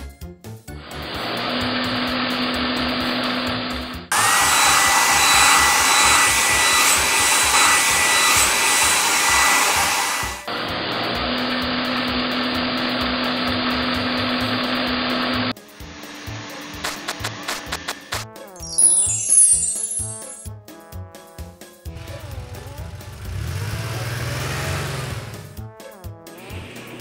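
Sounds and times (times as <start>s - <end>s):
electric blowing noise: 4.1s - 10.2s
bright hiss with whistle tone: 18.6s - 20.5s.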